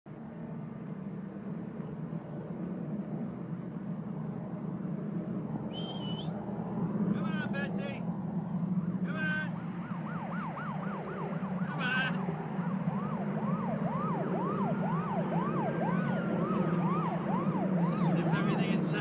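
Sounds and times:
low traffic hum: 0:00.1 - 0:19.0
slow wailing siren: 0:01.3 - 0:07.2, 0:08.2 - 0:19.0
short high calls: 0:05.7 - 0:06.3
siren sweeping up and down: 0:07.0 - 0:19.0.

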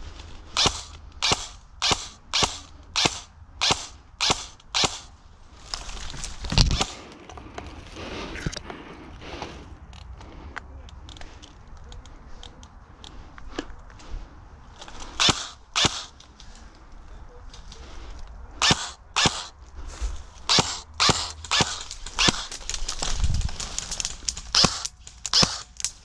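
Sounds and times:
airsoft rifle shots: 0:00.6 - 0:05.1, 0:15.2 - 0:16.2, 0:18.6 - 0:19.6, 0:20.4 - 0:22.6, 0:24.5 - 0:26.0.

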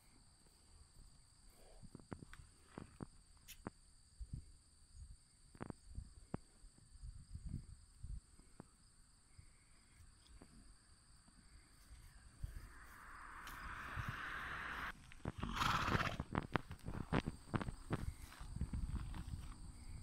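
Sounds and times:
hooves thudding on grass: 0:11.8 - 0:20.0
hiss: 0:12.4 - 0:16.2
horse snorting: 0:15.3 - 0:16.3.

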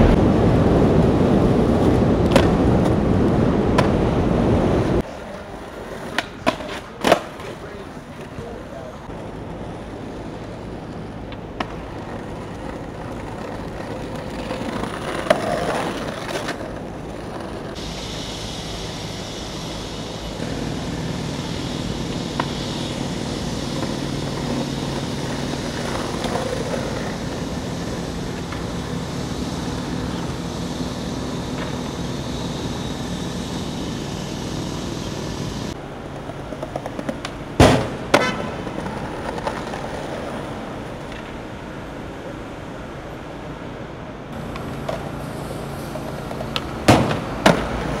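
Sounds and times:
skateboard wheels rolling on pavement: 0:00.0 - 0:48.0
street traffic noise: 0:00.0 - 0:48.0
skateboard clacking on ground: 0:05.0 - 0:17.8, 0:22.1 - 0:28.8, 0:35.7 - 0:41.5, 0:46.0 - 0:48.0.

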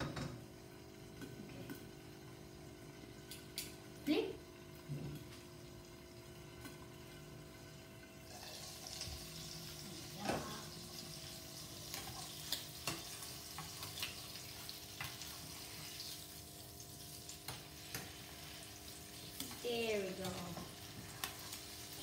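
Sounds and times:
ham sizzling in oil: 0:00.6 - 0:22.0
tongs clicking and popping: 0:03.2 - 0:03.8.

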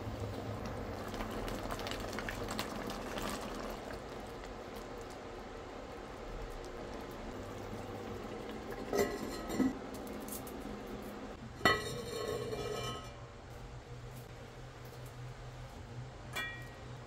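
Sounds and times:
pot lid clinking: 0:08.8 - 0:09.8, 0:11.6 - 0:13.2.

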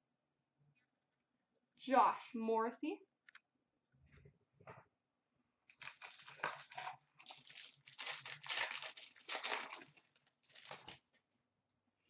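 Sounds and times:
wrapper crinkling and tearing: 0:05.7 - 0:11.1.

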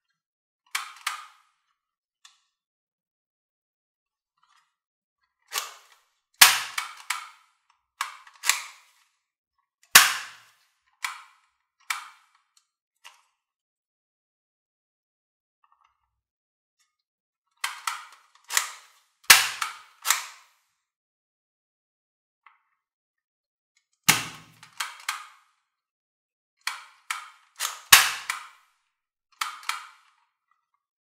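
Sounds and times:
plastic toy guns clicking: 0:00.7 - 0:01.4, 0:05.5 - 0:09.0, 0:09.9 - 0:12.4, 0:17.6 - 0:20.6, 0:24.1 - 0:25.5, 0:26.6 - 0:28.7, 0:29.4 - 0:30.2.

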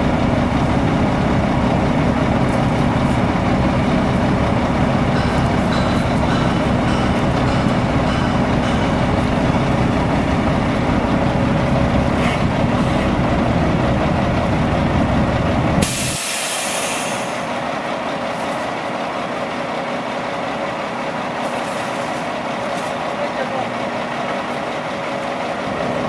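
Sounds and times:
diesel truck engine running: 0:00.0 - 0:26.0
compressed-air hiss: 0:15.8 - 0:17.5.

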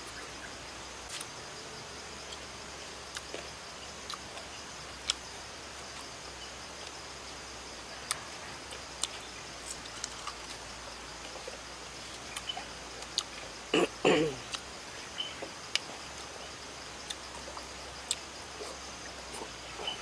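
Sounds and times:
crickets chirring: 0:00.0 - 0:20.0
crunchy chewing: 0:03.1 - 0:06.1, 0:08.0 - 0:14.7, 0:17.0 - 0:20.0.

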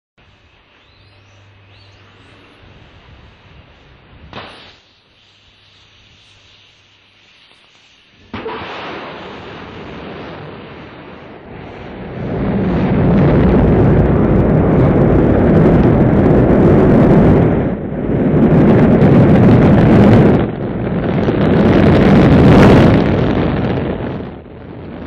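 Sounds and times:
rocket engines rumbling: 0:00.2 - 0:25.0.

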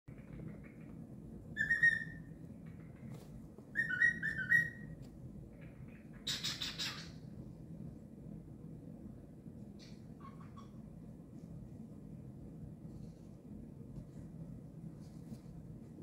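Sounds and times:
cockatiel whistling: 0:01.6 - 0:02.3, 0:03.7 - 0:05.0.

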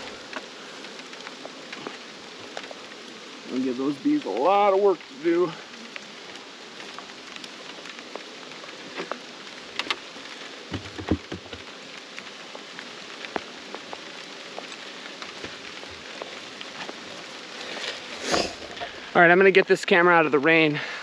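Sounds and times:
steady rain falling: 0:00.0 - 0:21.0
wooden boxes knocking and thumping: 0:10.7 - 0:11.8.

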